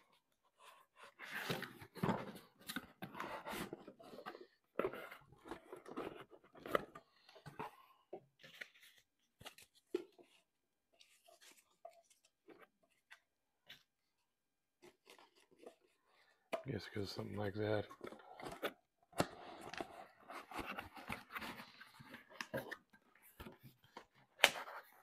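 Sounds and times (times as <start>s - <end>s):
cardboard and foam rustling: 17.6s - 25.0s.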